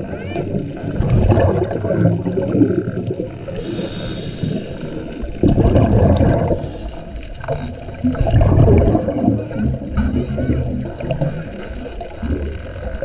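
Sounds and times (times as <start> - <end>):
underwater exhaled bubbles gurgling: 0.0 - 13.0
dolphin whistles: 8.8 - 11.5.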